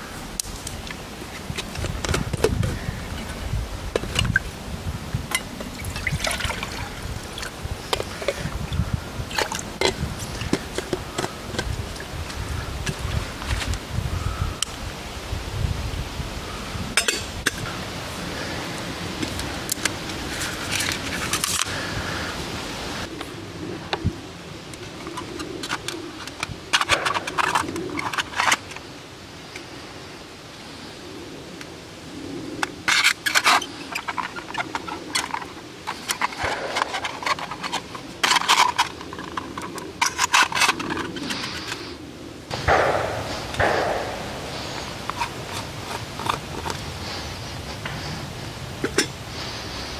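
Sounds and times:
aluminium sheet crinkling: 32.9s - 41.9s
metal rasping and scraping: 32.9s - 41.9s.

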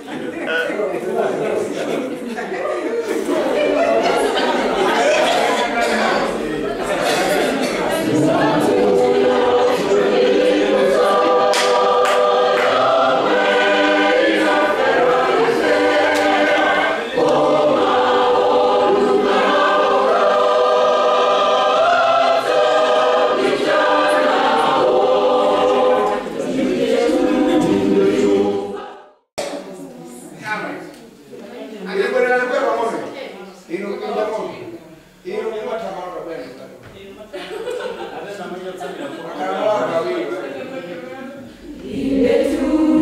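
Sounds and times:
choir singing in harmony: 3.1s - 29.2s, 41.5s - 43.0s.

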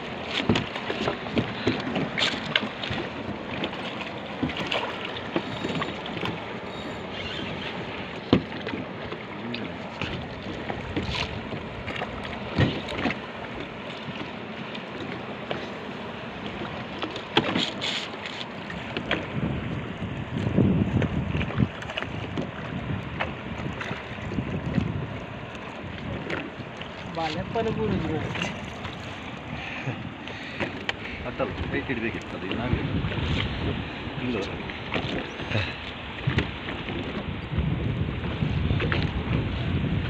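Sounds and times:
water washing against boat: 0.0s - 40.0s
wind on microphone: 9.5s - 14.2s, 18.7s - 40.0s.

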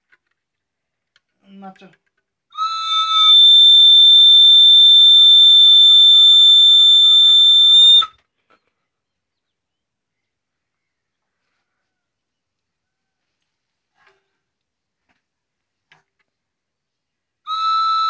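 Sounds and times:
shrill whistle: 2.6s - 8.2s, 17.5s - 18.0s.

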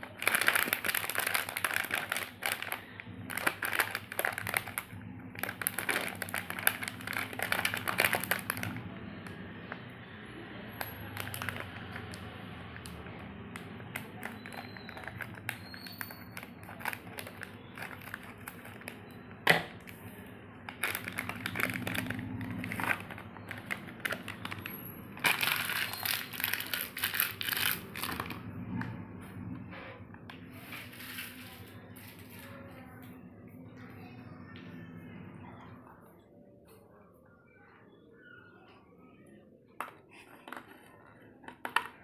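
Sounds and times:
plastic wrapper crinkling: 0.0s - 9.4s, 10.8s - 28.4s.

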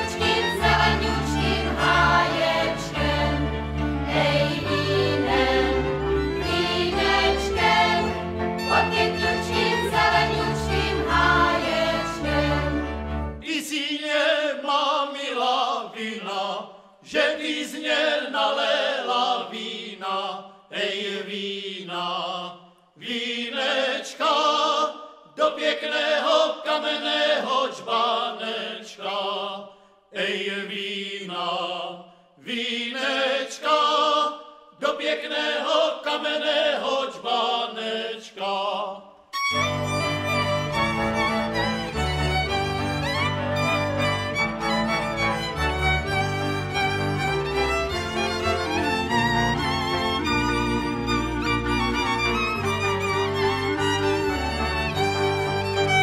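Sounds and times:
voices singing: 0.0s - 12.8s, 13.4s - 29.6s
instrumental accompaniment: 0.0s - 13.4s, 39.4s - 56.0s.

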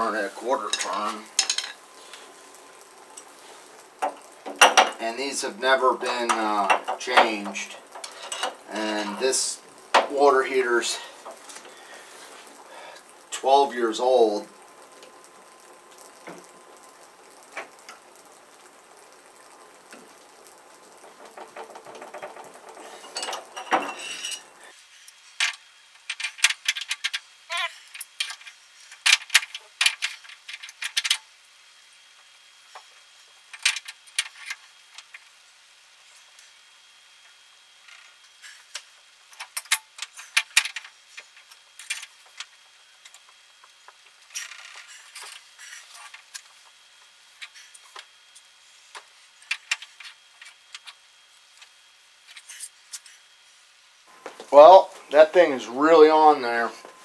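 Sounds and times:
scraping and rustling: 20.8s - 31.2s, 39.4s - 46.8s.

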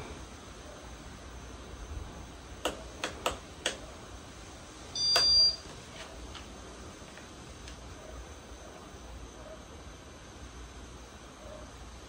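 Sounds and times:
short electronic beep: 5.0s - 5.6s.

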